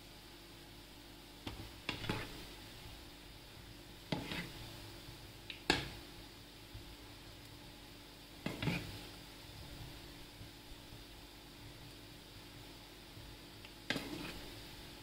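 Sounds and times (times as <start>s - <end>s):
oil sizzling: 0.5s - 15.0s
spoon scraping a frying pan: 1.8s - 2.4s, 4.1s - 4.6s, 8.4s - 9.0s, 13.9s - 14.6s.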